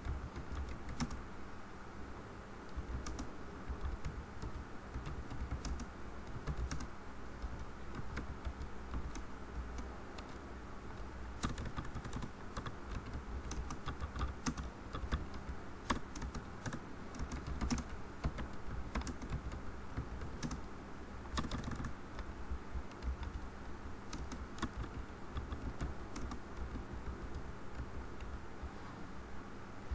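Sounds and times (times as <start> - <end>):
keyboard typing: 0.0 - 1.2, 2.7 - 10.4, 11.0 - 20.7, 21.3 - 28.5
steady low hum: 0.0 - 29.9.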